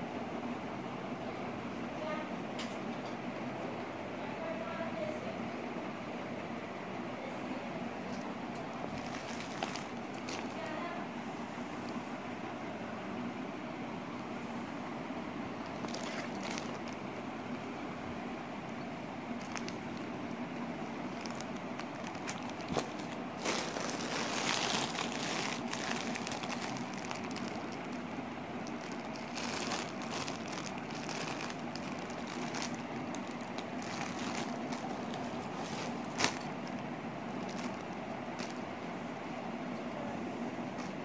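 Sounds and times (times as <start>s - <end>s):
low background hum: 0.0s - 41.0s
plastic packaging crinkling: 8.9s - 10.6s, 15.6s - 17.1s, 19.4s - 20.1s, 21.0s - 38.6s.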